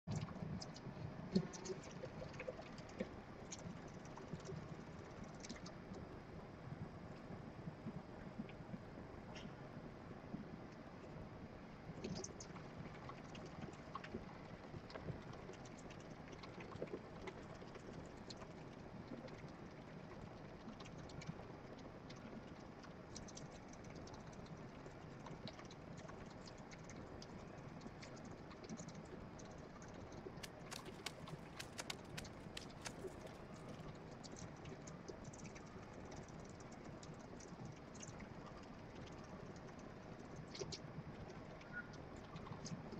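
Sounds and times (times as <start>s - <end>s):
steady low hiss: 30.2s - 34.2s
hamster claws scrabbling: 30.4s - 33.9s.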